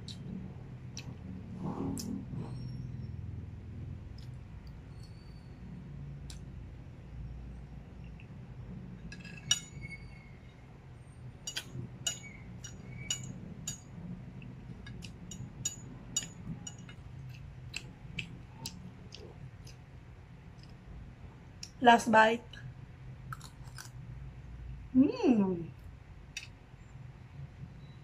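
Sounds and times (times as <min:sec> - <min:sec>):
steady low hum: 0:00.0 - 0:28.0
cutlery clinking on a plate: 0:09.1 - 0:09.9, 0:11.5 - 0:13.9, 0:15.0 - 0:17.0.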